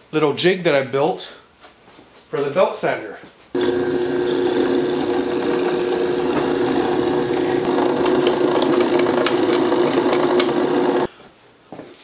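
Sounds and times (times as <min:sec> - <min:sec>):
drill press boring wood: 0:03.6 - 0:11.1.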